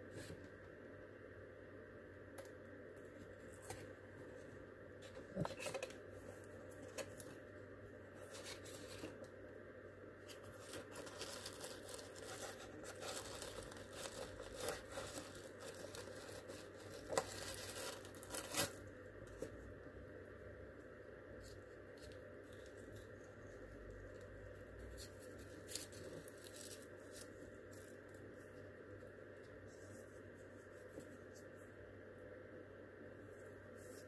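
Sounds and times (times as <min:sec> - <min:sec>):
tissue paper crinkling and rustling: 0:08.2 - 0:09.2, 0:10.2 - 0:19.5, 0:24.1 - 0:28.1.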